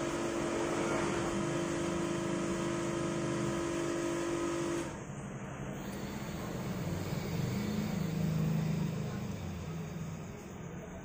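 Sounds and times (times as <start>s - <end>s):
motor humming: 5.7s - 11.0s.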